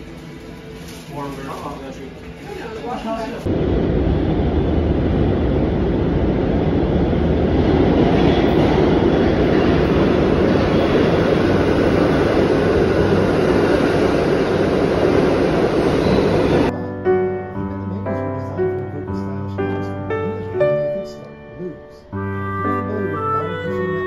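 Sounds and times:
subway train rumbling on rails: 0:00.0 - 0:17.0.

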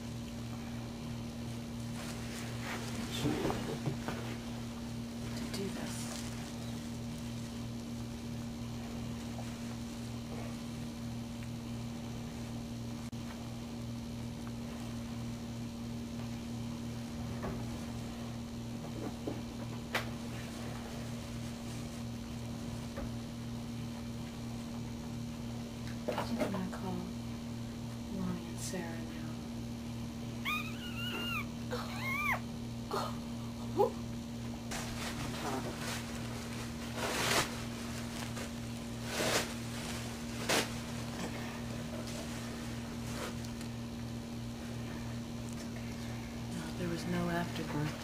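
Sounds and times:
low throbbing motor hum: 0:00.0 - 0:48.0
towels and bedding rustling: 0:01.8 - 0:04.6, 0:05.2 - 0:08.0, 0:34.7 - 0:43.4.

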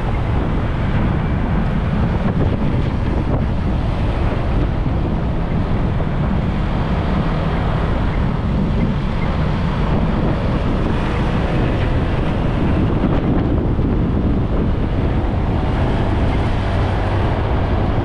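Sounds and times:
road noise: 0:00.0 - 0:18.0
wind buffeting microphone: 0:00.0 - 0:18.0.

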